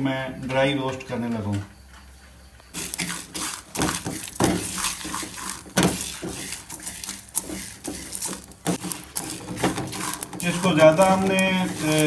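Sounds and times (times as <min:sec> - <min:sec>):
seeds rattling against metal: 0:02.7 - 0:12.0
wooden spoon scraping pan: 0:02.8 - 0:12.0.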